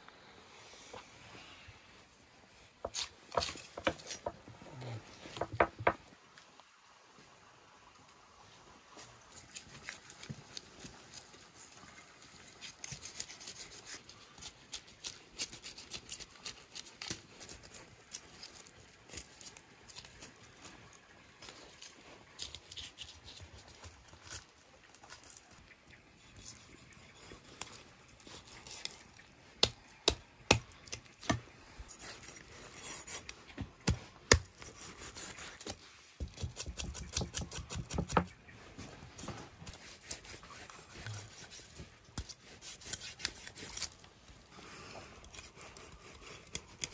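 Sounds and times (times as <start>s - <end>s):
knife scraping fish scales: 12.5s - 20.1s, 26.2s - 33.4s, 34.3s - 38.3s, 39.6s - 44.1s, 45.2s - 46.9s.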